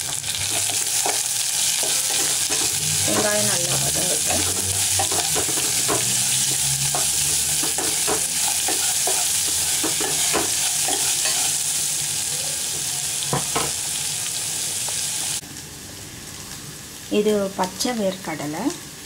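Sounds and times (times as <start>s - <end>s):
onions sizzling in hot oil: 0.0s - 19.0s
spoon scraping against pot: 6.9s - 11.6s.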